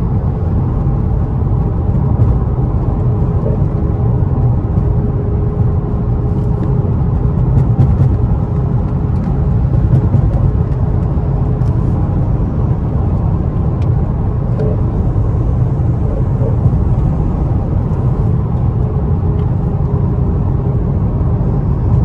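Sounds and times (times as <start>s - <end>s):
car engine rumble: 0.0s - 22.0s
road noise: 0.0s - 22.0s.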